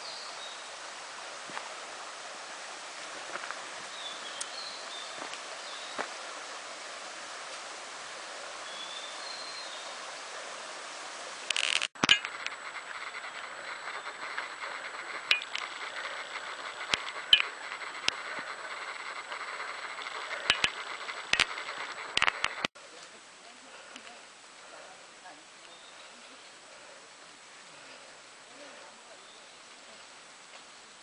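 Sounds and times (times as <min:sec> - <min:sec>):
stream flowing over rocks: 0:00.0 - 0:12.6
quiet hiss: 0:00.0 - 0:31.0
footsteps on dirt trail: 0:03.0 - 0:06.2.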